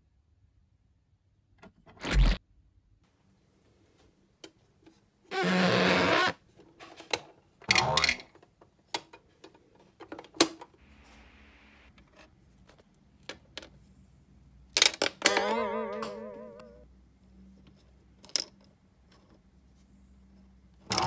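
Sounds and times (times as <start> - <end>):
wavering tone: 15.4 - 16.8.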